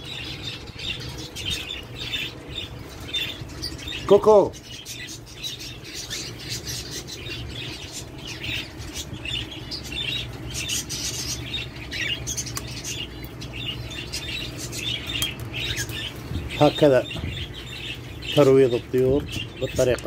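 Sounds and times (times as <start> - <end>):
cage birds chirping: 0.0 - 20.0
steady low hum: 0.0 - 20.0.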